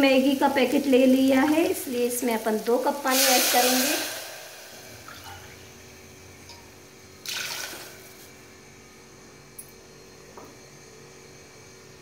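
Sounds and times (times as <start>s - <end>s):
water hissing in hot pot: 0.0s - 5.9s
steady electrical hum: 0.0s - 12.0s.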